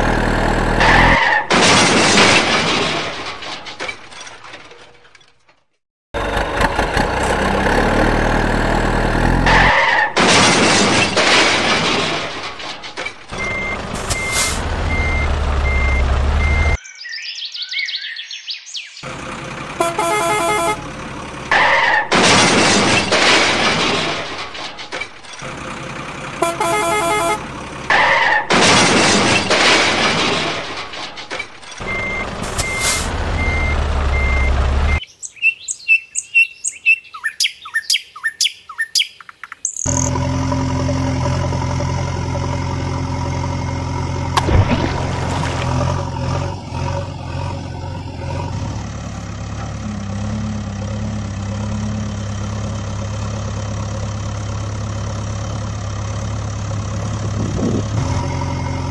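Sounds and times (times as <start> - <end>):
truck engine running: 0.0 - 3.8, 6.2 - 16.8, 19.0 - 35.0, 39.9 - 58.9
truck horn blasts: 19.7 - 21.0, 26.3 - 27.6.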